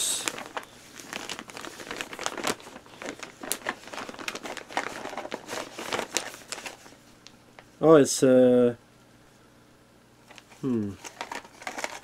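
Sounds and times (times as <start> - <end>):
packaging crinkling: 0.0 - 7.7, 10.3 - 12.0.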